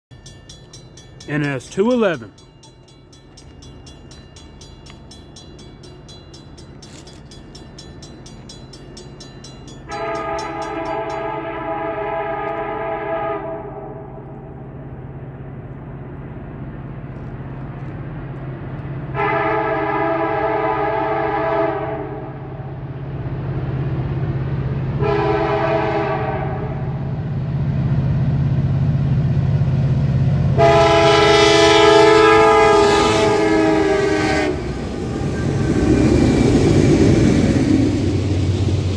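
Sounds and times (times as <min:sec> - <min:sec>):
locomotive horn blasts: 0:09.9 - 0:14.3, 0:19.1 - 0:22.4, 0:25.0 - 0:26.9, 0:30.6 - 0:35.6
diesel engine rumbling: 0:26.3 - 0:38.9.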